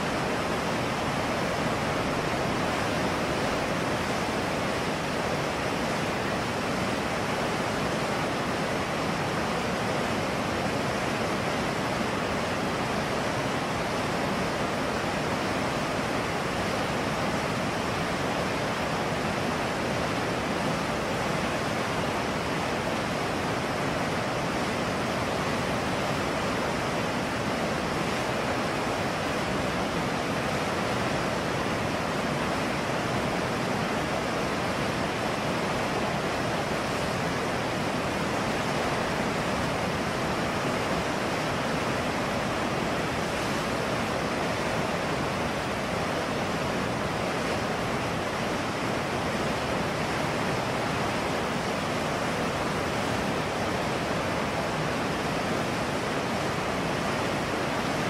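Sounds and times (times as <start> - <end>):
river rapids rushing over rocks: 0.0 - 58.0.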